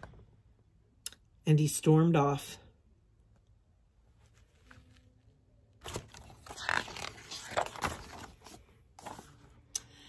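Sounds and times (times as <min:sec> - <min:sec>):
book page turning: 0:04.1 - 0:09.5.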